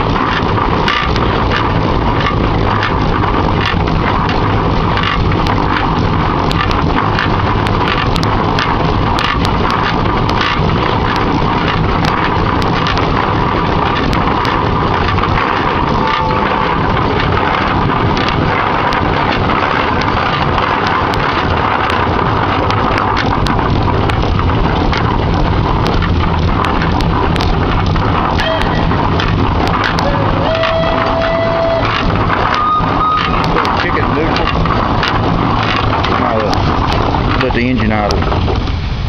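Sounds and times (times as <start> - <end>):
steam engine clattering: 0.0 - 39.0.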